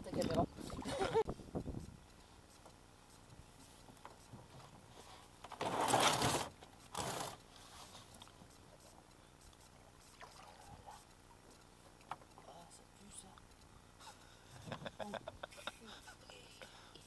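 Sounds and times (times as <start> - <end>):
boat hull scraping: 5.0 - 8.1.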